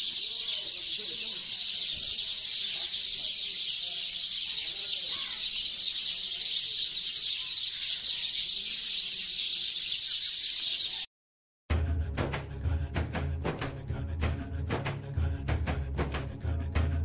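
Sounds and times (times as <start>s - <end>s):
birds calling: 0.0s - 11.1s
music with heavy drum beats: 11.7s - 17.0s.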